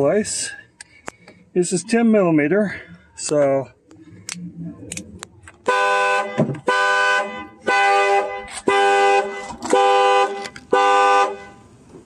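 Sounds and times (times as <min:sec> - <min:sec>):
truck horn honking: 0:05.6 - 0:11.7.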